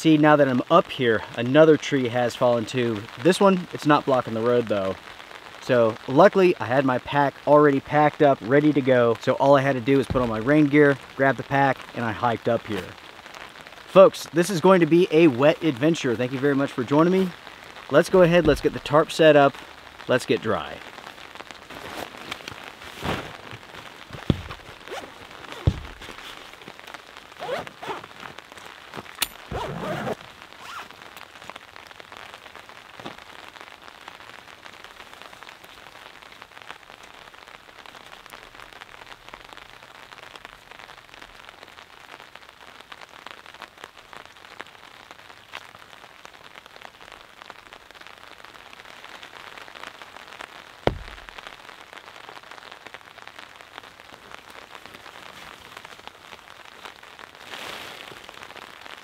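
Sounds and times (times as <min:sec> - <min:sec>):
steady rain falling: 0:00.0 - 0:59.0
backpack knocks and rustles: 0:10.1 - 0:10.4, 0:21.7 - 0:26.5, 0:50.9 - 0:51.4.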